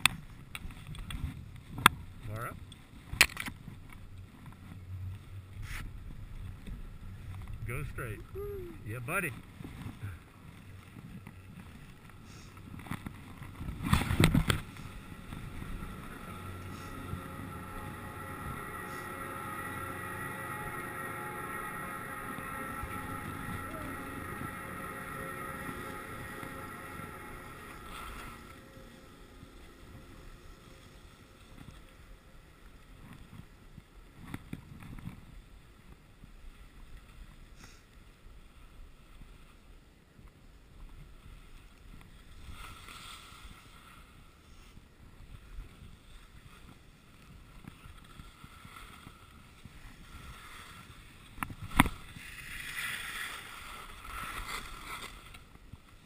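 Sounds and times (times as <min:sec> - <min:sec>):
wind on microphone: 0:00.0 - 0:37.6, 0:38.2 - 0:56.0
skis sliding over snow: 0:00.0 - 0:56.0
chairlift machinery humming: 0:02.9 - 0:35.2, 0:45.2 - 0:56.0.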